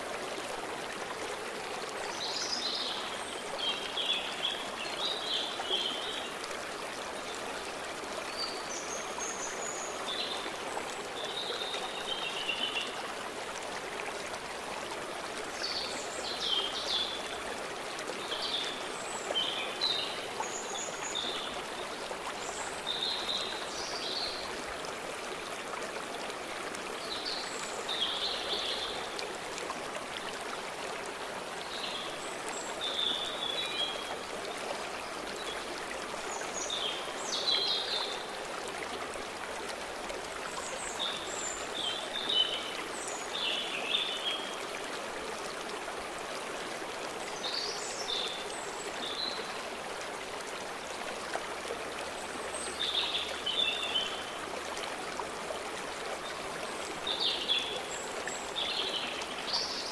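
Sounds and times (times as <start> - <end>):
stream rushing over its bed: 0.0 - 59.9.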